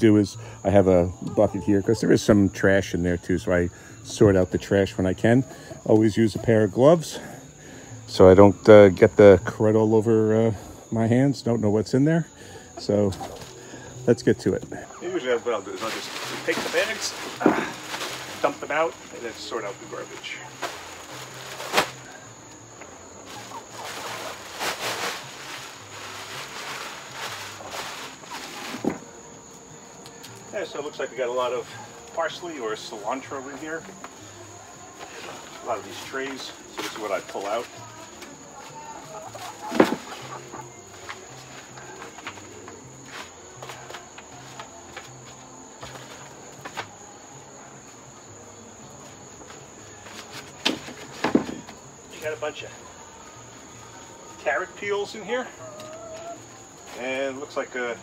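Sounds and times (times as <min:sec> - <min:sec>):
plastic bag rustling: 0:15.4 - 0:22.2, 0:23.2 - 0:29.1
food scraps spilling: 0:15.6 - 0:19.0.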